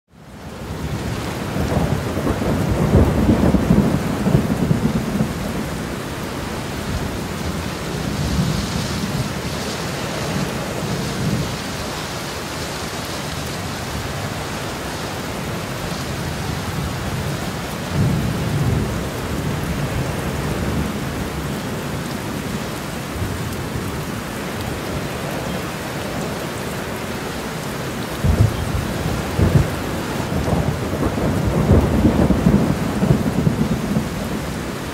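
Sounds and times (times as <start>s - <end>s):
steady rain: 0.1s - 34.9s
low rolling thunder: 0.7s - 11.8s, 15.4s - 24.1s, 28.1s - 34.9s.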